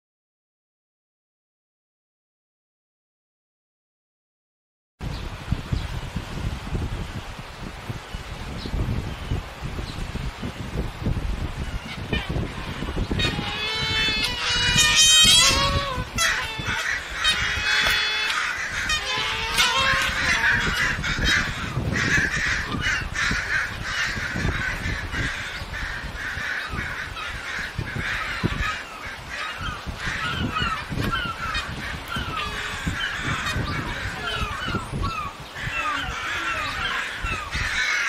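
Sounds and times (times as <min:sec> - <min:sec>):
geese honking: 0:12.2 - 0:38.0.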